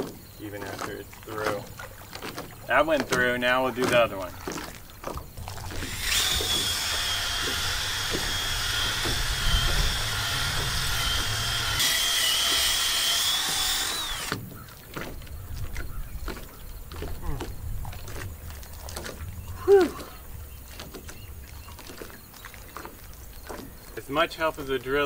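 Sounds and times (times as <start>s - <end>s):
cordless drill whine: 5.7s - 14.4s.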